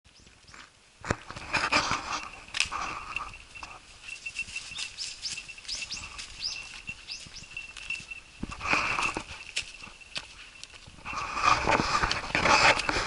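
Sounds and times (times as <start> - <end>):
footsteps crunching dry leaves: 0.2 - 13.0
birds chirping: 1.8 - 11.8.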